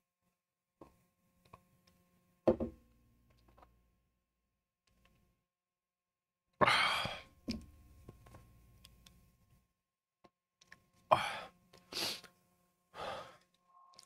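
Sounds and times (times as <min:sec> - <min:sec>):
man sighing heavily: 0:06.6 - 0:07.3, 0:11.1 - 0:12.2, 0:13.0 - 0:13.4.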